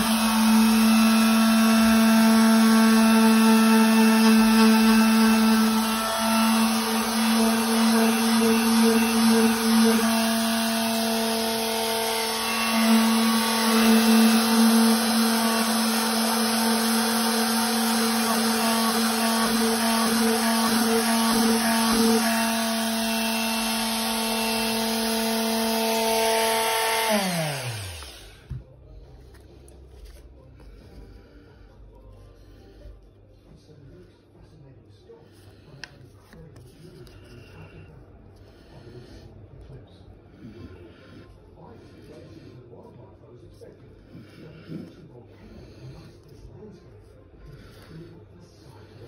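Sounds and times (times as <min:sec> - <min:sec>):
orbital sander humming: 0:00.0 - 0:28.4
sander winding down: 0:00.0 - 0:28.4.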